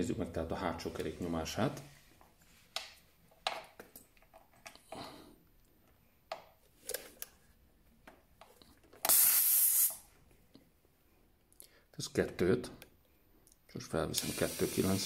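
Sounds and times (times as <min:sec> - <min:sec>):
compressed air hiss: 0:09.0 - 0:10.1, 0:14.2 - 0:15.0.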